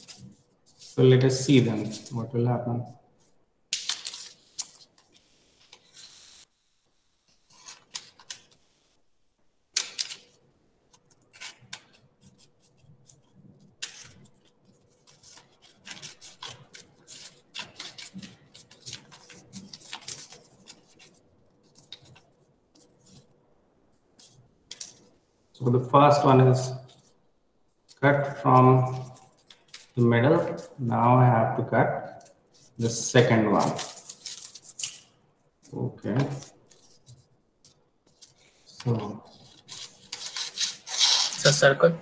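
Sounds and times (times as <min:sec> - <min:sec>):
paper rustling: 0:00.0 - 0:02.3, 0:03.2 - 0:06.0, 0:07.5 - 0:08.6, 0:09.8 - 0:23.3, 0:27.9 - 0:31.2, 0:32.0 - 0:41.4
scissors snipping paper: 0:10.9 - 0:22.2, 0:38.8 - 0:41.4.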